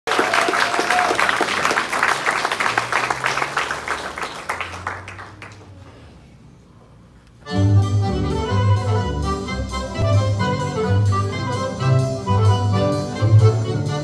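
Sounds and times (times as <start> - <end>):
audience applauding: 0.1 - 5.8.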